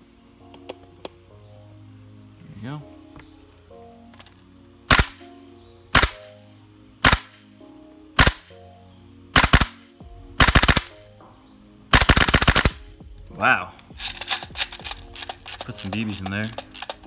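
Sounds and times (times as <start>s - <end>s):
airsoft rifle shots: 4.9s - 5.2s, 5.9s - 6.3s, 7.0s - 7.4s, 8.2s - 8.5s, 9.3s - 10.9s, 11.9s - 12.9s.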